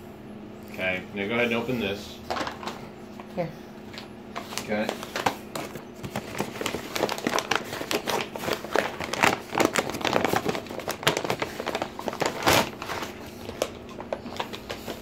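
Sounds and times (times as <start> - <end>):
paper wrapping crinkling: 4.4 - 15.0.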